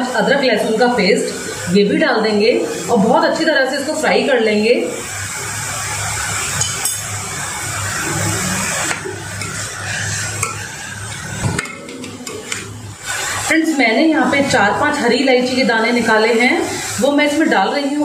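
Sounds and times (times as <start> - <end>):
onions sizzling in a pan: 0.2 - 18.0
metal spoon scraping a pan: 8.9 - 12.8.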